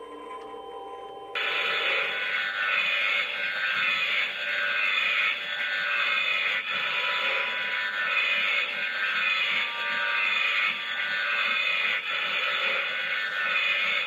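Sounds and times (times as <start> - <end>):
soft tonal drone: 0.0 - 4.1.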